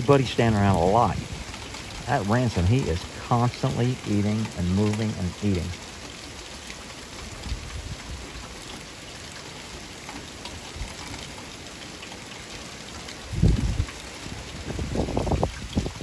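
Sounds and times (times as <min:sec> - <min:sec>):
wind rumbling on microphone: 0:00.0 - 0:05.8, 0:07.2 - 0:08.5, 0:13.2 - 0:16.0
light rain pattering: 0:00.0 - 0:16.0.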